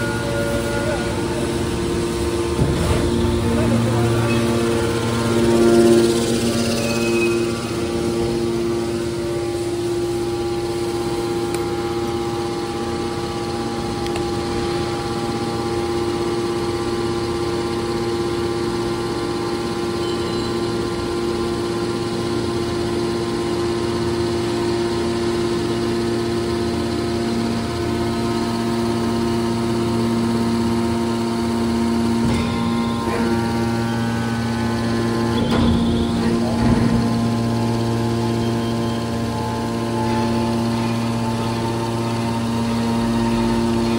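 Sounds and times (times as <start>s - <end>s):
hydraulic pump machine hum: 0.0s - 43.9s.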